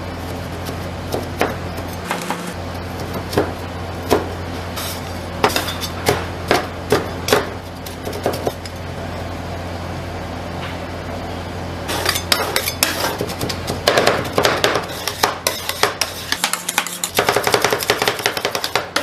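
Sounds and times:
steady low hum: 0:00.0 - 0:19.0
metal spatulas chopping on steel: 0:00.6 - 0:08.7, 0:11.9 - 0:19.0.

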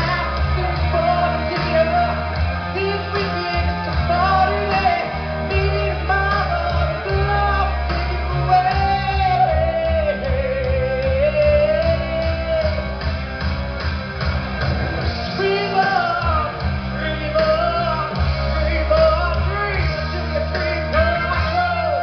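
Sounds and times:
bass guitar: 0:00.0 - 0:22.0
rock song with singer and band: 0:00.0 - 0:22.0.

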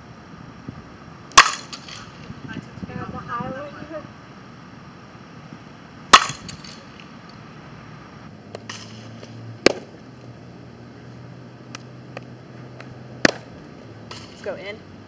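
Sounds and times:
bat hitting softball: 0:01.3 - 0:02.4, 0:06.1 - 0:07.4, 0:08.5 - 0:10.0, 0:11.7 - 0:14.6
ball popping into mitt: 0:08.5 - 0:10.0, 0:11.7 - 0:13.5.

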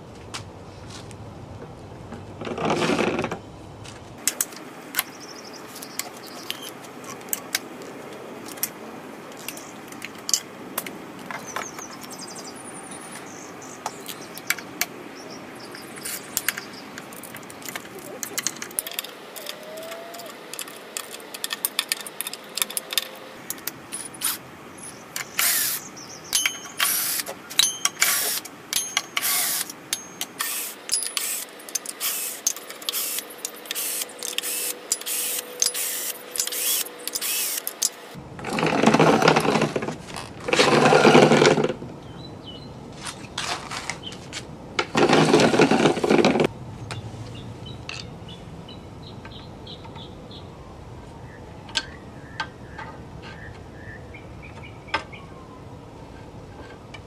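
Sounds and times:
metal bolts clinking: 0:26.3 - 0:38.0.

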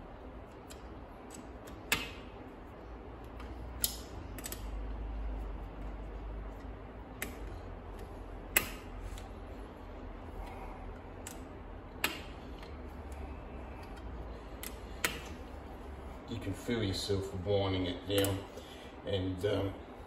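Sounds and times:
hex key clicking against metal bolts: 0:03.8 - 0:04.8.

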